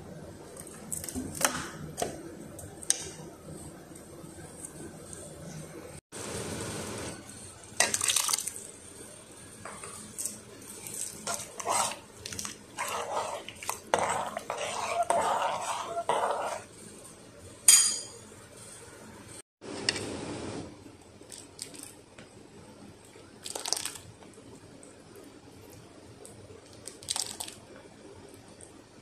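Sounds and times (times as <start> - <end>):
spoon scraping in a pot: 9.6 - 18.1
spoon clinking against pot: 17.7 - 18.2.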